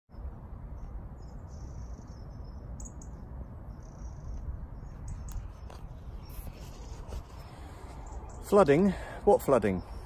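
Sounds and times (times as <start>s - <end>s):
high thin bird chirps: 0.1s - 8.9s
wind buffeting microphone: 0.1s - 8.9s.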